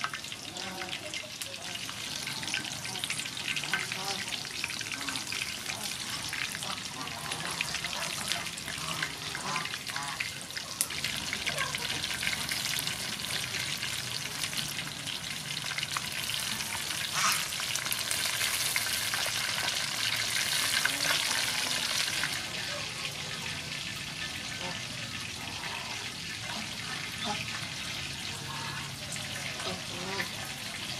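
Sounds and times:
deep-frying sizzle: 0.0s - 30.9s.

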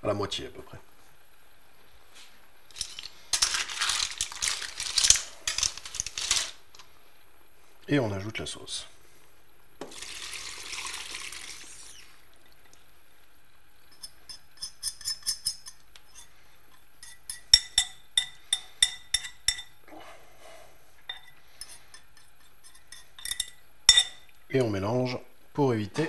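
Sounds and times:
hot pot hissing: 9.8s - 12.4s
spoon scraping bowl: 13.9s - 19.7s, 21.1s - 24.2s
spoon clinking against bowl: 17.0s - 19.8s, 22.7s - 24.2s.

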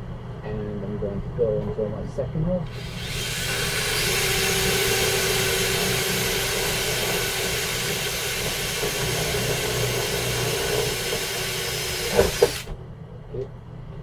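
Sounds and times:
cordless drill boring into metal: 2.7s - 12.7s.

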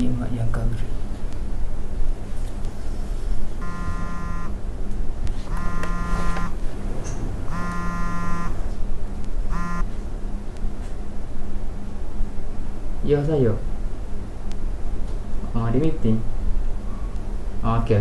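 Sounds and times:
mobile phone ringing: 3.6s - 4.6s, 5.5s - 6.6s, 7.5s - 8.7s, 9.5s - 9.8s.

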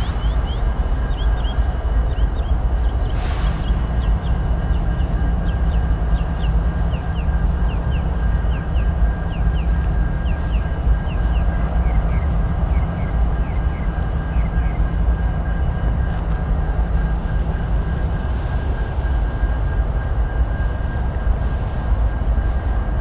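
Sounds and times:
diesel locomotives rumbling: 0.0s - 23.0s
faint steady whine: 0.0s - 23.0s.

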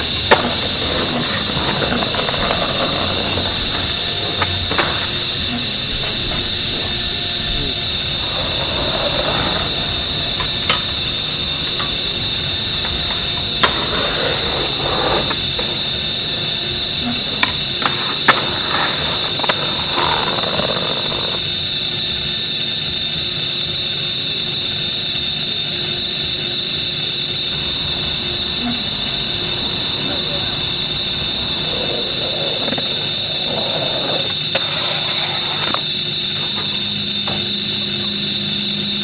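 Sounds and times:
skateboard popping and landing: 0.0s - 7.0s, 12.8s - 16.5s, 17.4s - 21.5s, 31.5s - 37.6s
skateboard wheels rolling on concrete: 0.0s - 22.5s, 26.6s - 39.0s
high-pitched whine and hiss: 0.0s - 39.0s.

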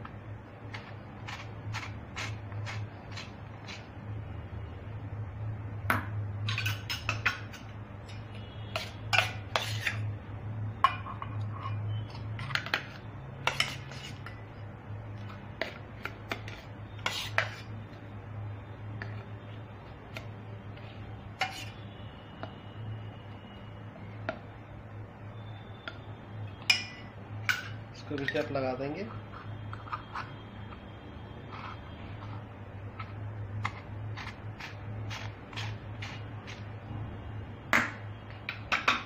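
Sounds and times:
spoon clinking on steel bowl: 26.6s - 28.4s.

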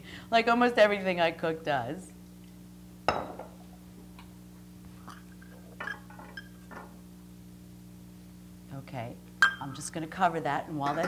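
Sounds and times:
faint steady hum: 0.0s - 11.0s
kitchenware clanking and clinking: 5.1s - 7.0s, 10.8s - 11.0s.

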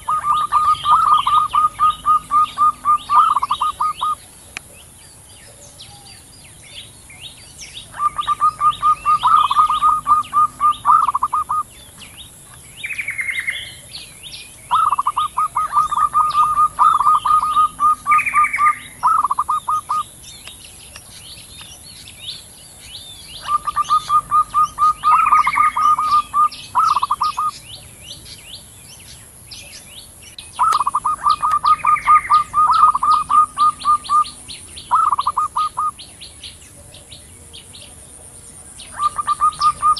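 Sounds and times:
doves cooing: 0.0s - 7.0s, 7.6s - 20.2s, 22.8s - 28.2s, 30.4s - 39.9s
small birds chirping faintly: 0.0s - 39.9s.

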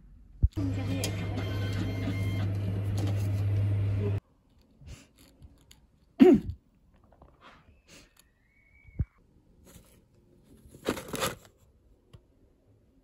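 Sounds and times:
person clearing throat: 6.2s - 6.6s.

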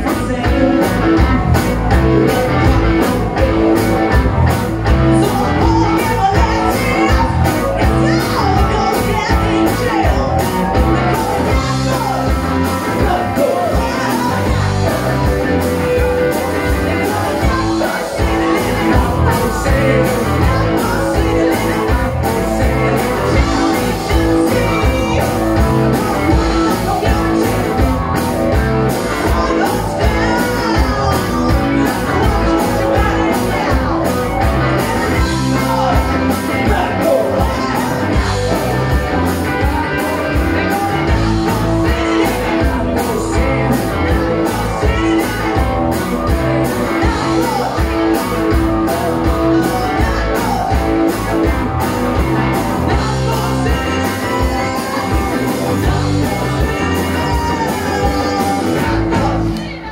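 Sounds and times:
bass guitar: 0.0s - 59.9s
drum kit beat: 0.0s - 59.9s
electric guitars: 0.0s - 59.9s
woman singing into a microphone: 5.2s - 12.2s.

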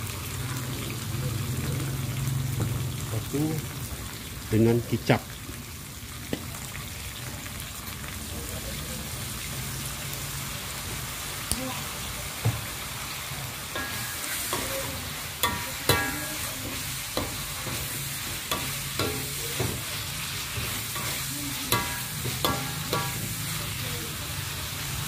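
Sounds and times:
meat sizzling in a wok: 0.0s - 25.0s
metal ladle scraping a wok: 13.7s - 23.6s.

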